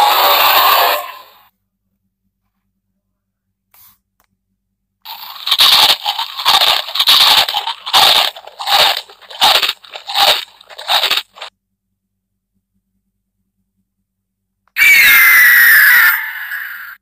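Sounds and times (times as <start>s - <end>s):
crunching chomps from small speaker: 5.1s - 11.5s.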